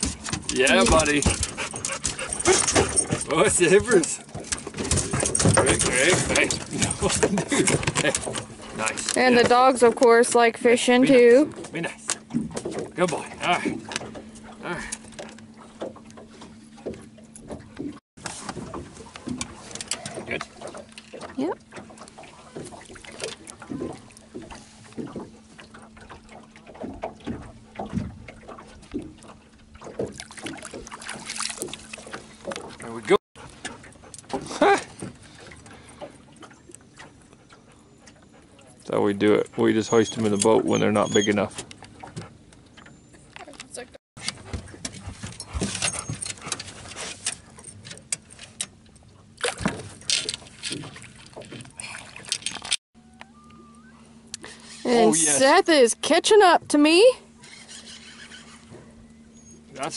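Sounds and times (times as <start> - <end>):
water sloshing and splashing: 0.0 - 59.9
small splashes: 18.2 - 37.3, 49.4 - 52.8.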